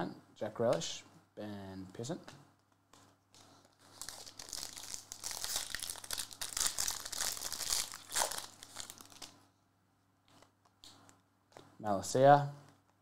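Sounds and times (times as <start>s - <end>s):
foil wrapper crinkling and tearing: 3.8s - 9.4s.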